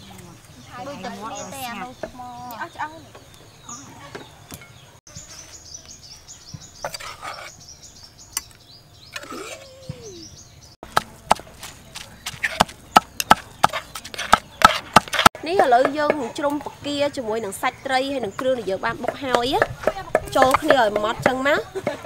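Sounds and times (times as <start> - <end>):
bird chirping: 0.0 - 15.0
pestle pounding in mortar: 10.8 - 16.2, 19.0 - 22.0.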